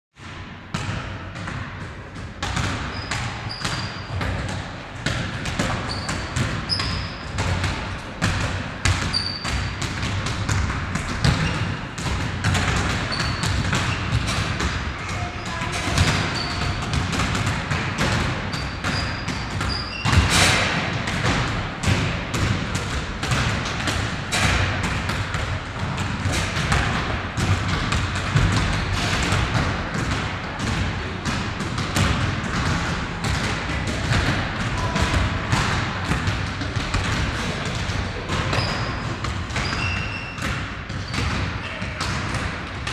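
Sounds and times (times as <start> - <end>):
basketballs bouncing on wooden floor: 0.2 - 42.9
shoe squeaks: 2.9 - 4.2, 5.8 - 7.4, 9.1 - 9.6, 13.1 - 14.1, 15.3 - 16.8, 18.5 - 20.4, 38.5 - 39.0, 39.6 - 40.4.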